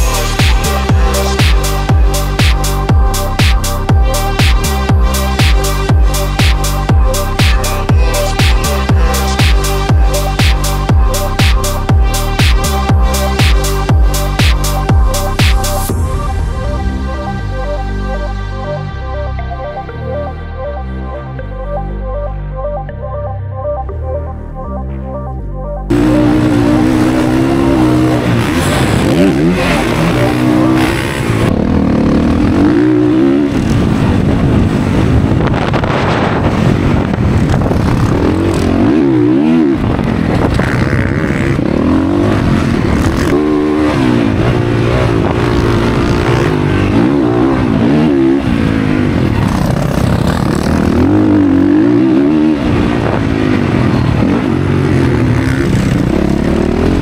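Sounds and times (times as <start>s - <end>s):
dirt bike engine revving: 25.9s - 57.0s.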